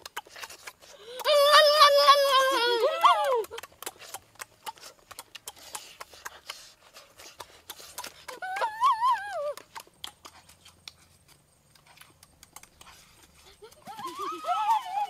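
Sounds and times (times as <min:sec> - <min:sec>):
lips smacking while chewing: 0:00.0 - 0:01.3, 0:03.3 - 0:08.7, 0:09.5 - 0:14.0
high wavering cry: 0:01.1 - 0:03.5, 0:13.7 - 0:15.0.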